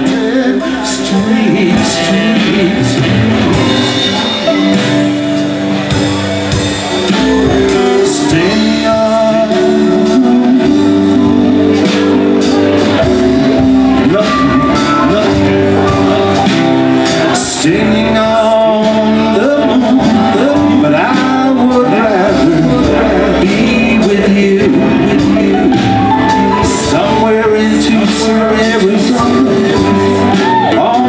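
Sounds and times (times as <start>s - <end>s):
acoustic guitar: 0.0s - 31.0s
electric bass: 0.0s - 31.0s
keyboard: 0.0s - 31.0s.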